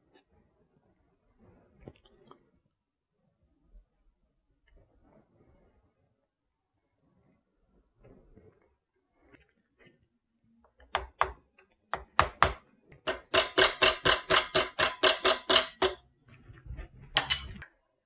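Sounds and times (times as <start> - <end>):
hammer striking metal: 12.2 - 16.0, 17.2 - 17.6.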